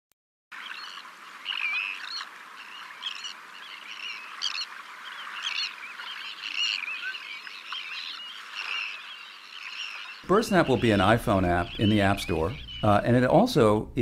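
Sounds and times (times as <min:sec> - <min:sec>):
small birds singing: 0:00.6 - 0:14.0.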